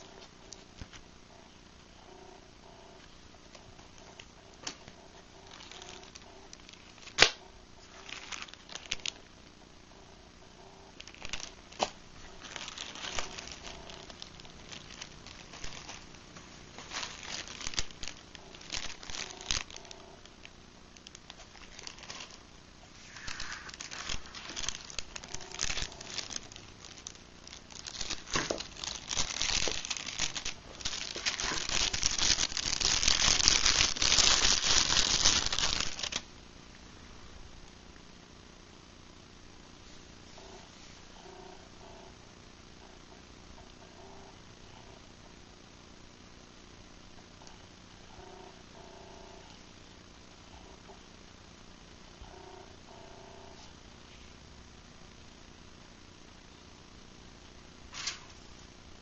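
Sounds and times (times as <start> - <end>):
plastic bags crinkling: 5.4 - 9.3, 11.0 - 20.4, 21.0 - 36.2.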